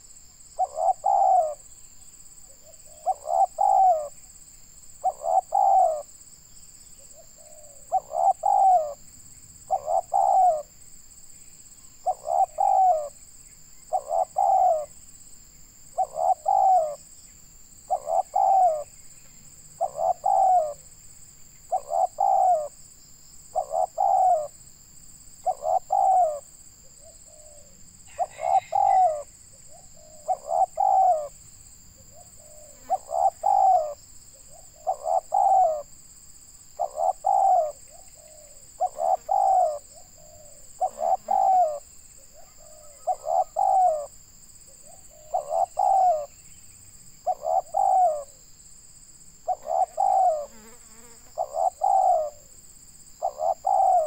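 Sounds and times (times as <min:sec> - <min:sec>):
dove cooing: 0:00.6 - 0:01.7, 0:02.4 - 0:04.2, 0:05.0 - 0:06.1, 0:07.0 - 0:09.0, 0:09.6 - 0:10.7, 0:12.0 - 0:13.2, 0:13.9 - 0:15.0, 0:15.9 - 0:17.0, 0:17.9 - 0:18.9, 0:19.8 - 0:20.9, 0:21.7 - 0:22.8, 0:23.5 - 0:24.5, 0:25.4 - 0:31.4, 0:32.0 - 0:35.9, 0:36.8 - 0:46.3, 0:47.2 - 0:48.4, 0:49.4 - 0:50.6, 0:51.4 - 0:52.5, 0:53.2 - 0:54.0.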